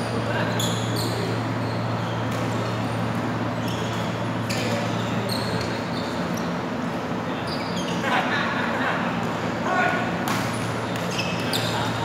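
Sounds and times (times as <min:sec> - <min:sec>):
shoes squeaking on floor: 0:00.5 - 0:02.3, 0:03.6 - 0:06.5, 0:11.1 - 0:12.0.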